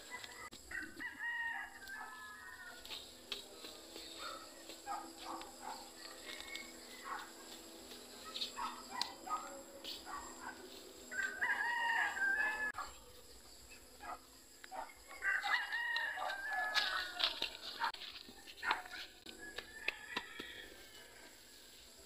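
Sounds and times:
rooster crowing: 0.1s - 2.9s, 11.1s - 12.8s, 15.2s - 17.6s, 19.4s - 21.5s.

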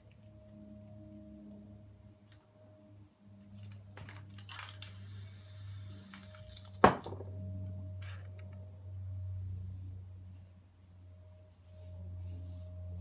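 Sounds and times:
low hum: 0.0s - 4.2s, 4.9s - 13.0s
spray paint can hissing: 4.8s - 6.5s.

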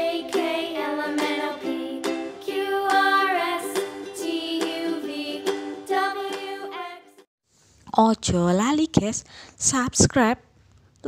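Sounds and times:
music with plucked strings and beat: 0.0s - 6.8s.

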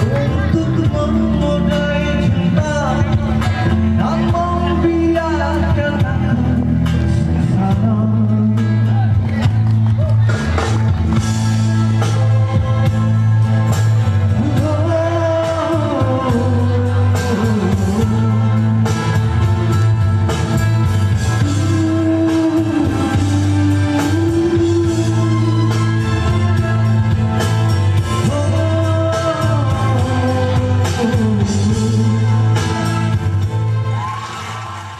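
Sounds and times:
man singing into microphone: 0.0s - 9.6s, 14.3s - 19.4s, 21.2s - 27.0s, 28.0s - 33.2s
steady bass: 0.0s - 34.9s.

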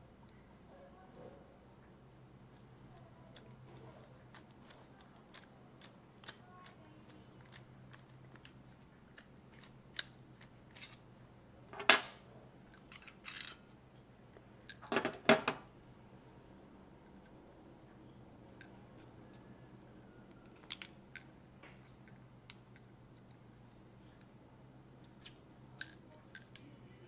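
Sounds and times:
small metal clicks and clinks: 2.5s - 11.1s, 12.7s - 13.6s, 20.4s - 23.4s, 25.0s - 26.7s.

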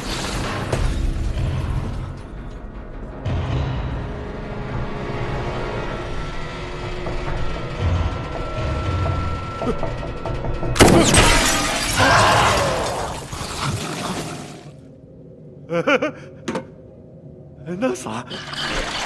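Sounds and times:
low rumbling drone: 1.0s - 11.7s.

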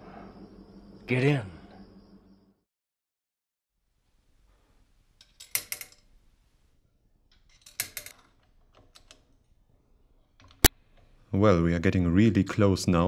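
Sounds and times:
small hard parts clicking: 7.3s - 9.5s.

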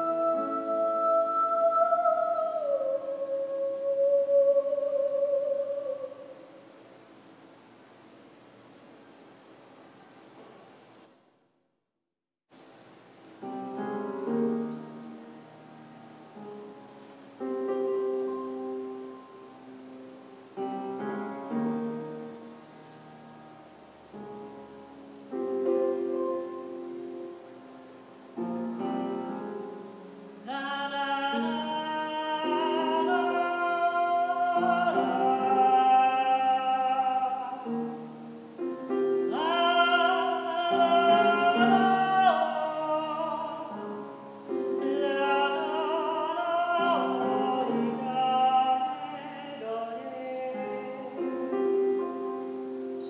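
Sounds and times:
woman singing operatic notes: 0.0s - 6.7s, 30.4s - 38.2s, 39.1s - 51.5s
grand piano chords: 0.0s - 8.1s, 13.2s - 53.0s.

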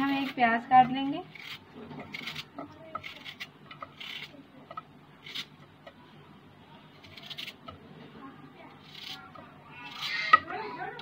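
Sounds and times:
knife slicing through onion: 0.0s - 4.4s, 7.0s - 7.8s.

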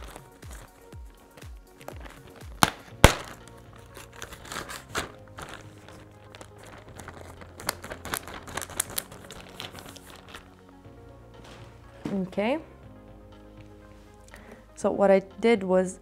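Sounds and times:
light background music: 0.0s - 16.0s
zip-lock bag snaps and clicks: 1.7s - 10.4s
plastic bag crinkling: 1.7s - 10.7s.

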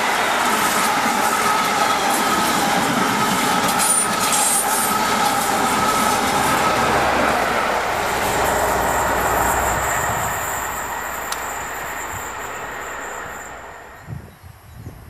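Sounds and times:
train wheels rumbling on rails: 0.0s - 15.0s
thin high tone: 4.3s - 14.6s.

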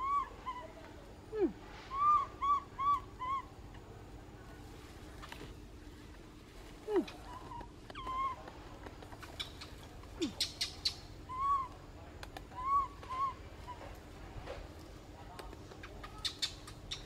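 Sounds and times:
baby monkey coo calls: 0.0s - 0.8s, 1.9s - 3.6s, 6.9s - 8.6s, 9.2s - 11.8s, 12.4s - 14.0s.

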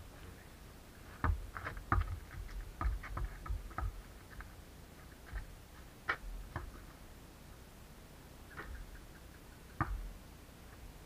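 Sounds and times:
basketball bouncing on dirt: 1.2s - 4.5s, 5.3s - 6.9s, 8.5s - 8.9s, 9.8s - 10.2s.

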